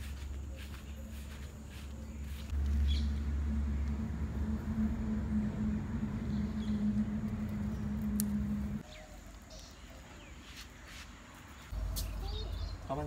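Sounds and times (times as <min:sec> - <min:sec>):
low mechanical hum: 0:00.2 - 0:08.8.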